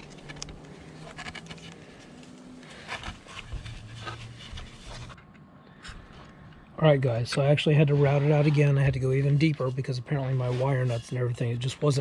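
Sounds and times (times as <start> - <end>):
wood scraping on grip tape: 0.0 - 5.2.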